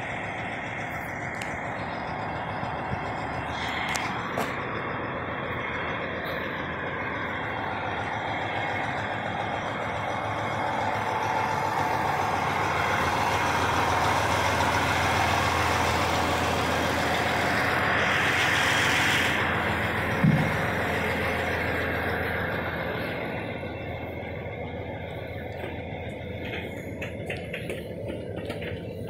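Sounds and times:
diesel truck running: 0.0s - 29.0s
short thump: 20.2s - 20.7s.

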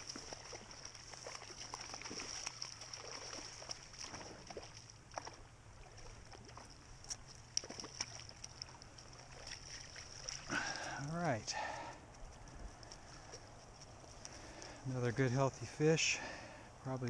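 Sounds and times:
fish splashing in water: 0.0s - 11.0s.

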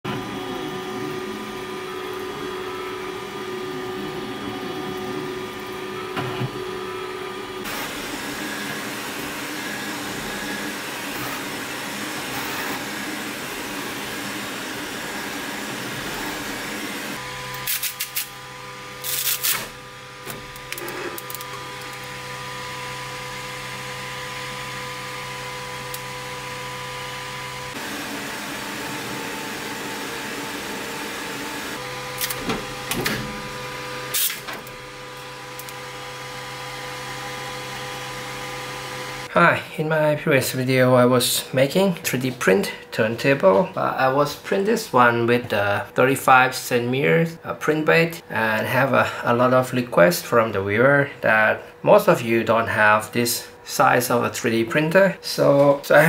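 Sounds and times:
whining motor tones: 0.0s - 39.3s
printer fans whirring: 0.0s - 56.0s.

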